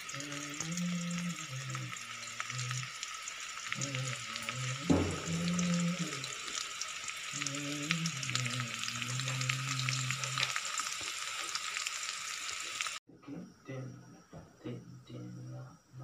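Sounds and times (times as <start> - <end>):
fish frying in hot oil: 0.0 - 13.0
knock: 4.9 - 5.3.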